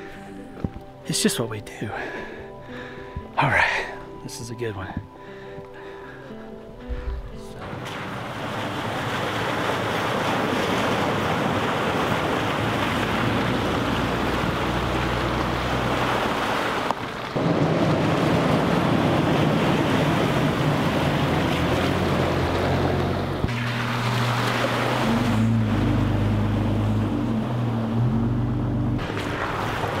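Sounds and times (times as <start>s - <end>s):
tyres splashing through water: 6.9s - 30.0s
vehicle engines running: 7.2s - 30.0s.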